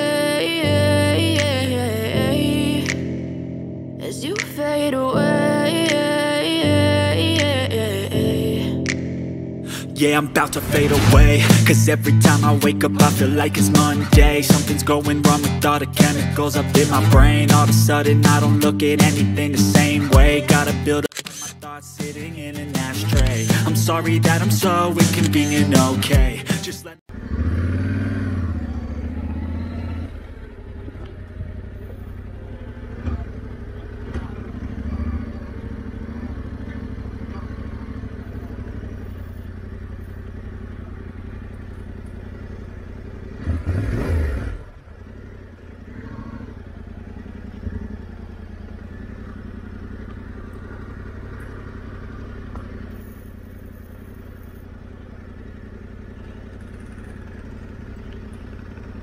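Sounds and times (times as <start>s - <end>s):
throttle blip rev: 2.8s - 3.6s, 8.8s - 9.6s, 10.2s - 30.4s
motorcycle engine running: 10.0s - 59.0s.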